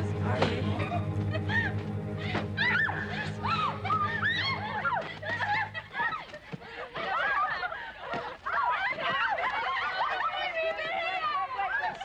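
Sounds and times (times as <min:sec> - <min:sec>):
low music bed: 0:00.0 - 0:06.4
women giggling and squealing: 0:00.0 - 0:12.0.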